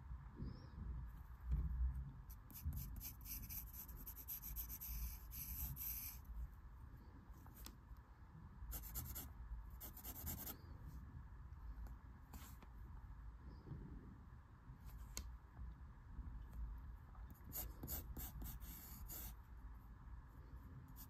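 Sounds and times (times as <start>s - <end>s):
pencil scratching on paper: 2.3s - 6.2s, 8.7s - 10.6s, 17.4s - 19.4s.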